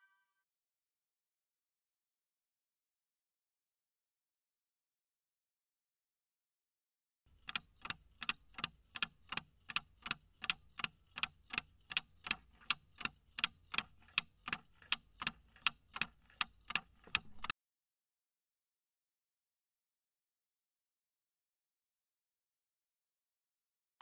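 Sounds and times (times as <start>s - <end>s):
countdown timer clock ticks: 7.4s - 17.5s.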